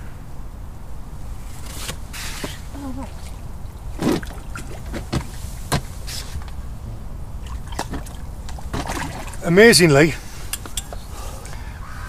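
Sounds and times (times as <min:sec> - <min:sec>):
fish splashing at surface: 0:07.4 - 0:09.5.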